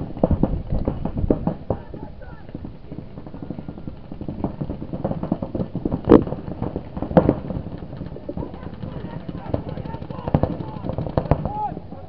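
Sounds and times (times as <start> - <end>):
loud close paintball shots: 0.0 - 11.8
paintball markers firing: 2.5 - 11.7.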